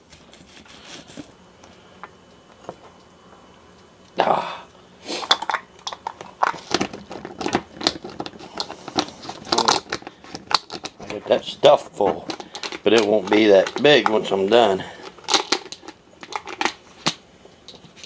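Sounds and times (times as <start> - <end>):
onion chopper clacking: 6.0 - 11.2.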